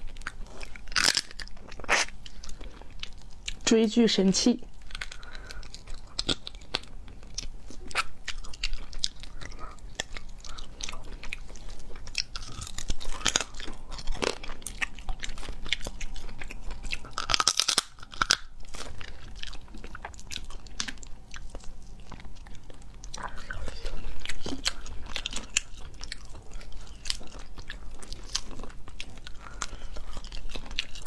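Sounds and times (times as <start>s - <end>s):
crab shell cracking: 0.0s - 2.5s, 17.0s - 18.9s
crunching and chewing: 0.0s - 3.8s, 4.6s - 31.0s.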